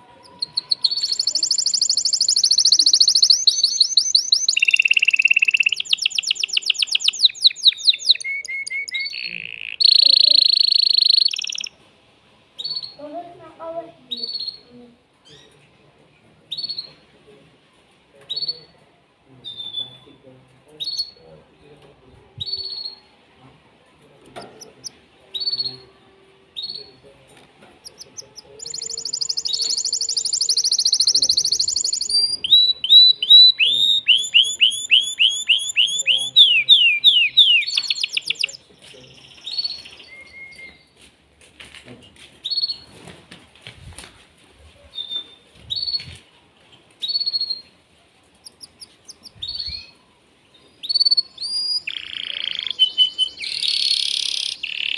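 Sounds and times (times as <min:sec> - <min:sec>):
canary singing trills: 0:00.0 - 0:11.8, 0:12.6 - 0:13.0, 0:14.1 - 0:15.6, 0:20.8 - 0:21.2, 0:22.4 - 0:23.1, 0:24.4 - 0:25.9, 0:27.8 - 0:40.9, 0:47.0 - 0:47.7, 0:48.3 - 0:54.9.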